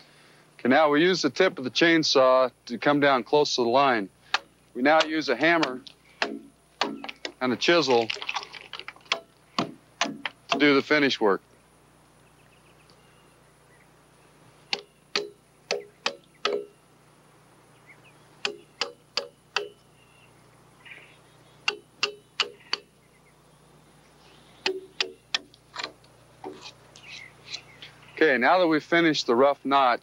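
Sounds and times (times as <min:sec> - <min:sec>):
hammer striking chisel: 0:04.3 - 0:07.2, 0:14.7 - 0:16.7, 0:18.4 - 0:19.8, 0:21.7 - 0:22.9, 0:24.6 - 0:25.9.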